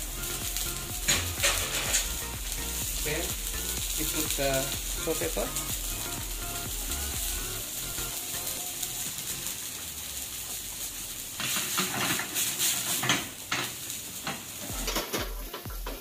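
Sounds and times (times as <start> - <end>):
food sizzling in pans: 0.0 - 16.0
wooden spoons knocking pans: 11.4 - 16.0.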